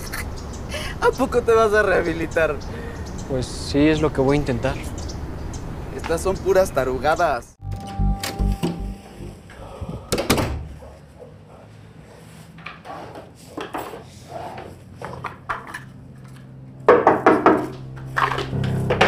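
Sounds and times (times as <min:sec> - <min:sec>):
wooden door thudding shut: 0:10.1 - 0:10.8
knocking on door: 0:16.9 - 0:17.7.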